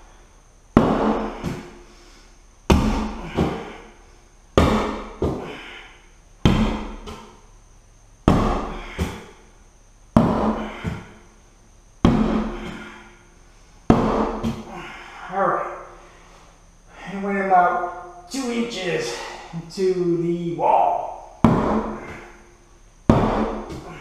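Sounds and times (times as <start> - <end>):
knife stabbing into wall: 13.9 - 14.7, 21.4 - 22.4, 23.1 - 24.0.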